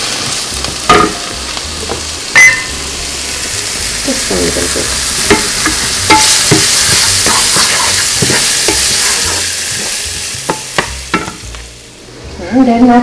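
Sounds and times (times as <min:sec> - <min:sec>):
scallions sizzling in a skillet: 0:00.0 - 0:13.0
wooden spatula scraping a pan: 0:06.2 - 0:10.0.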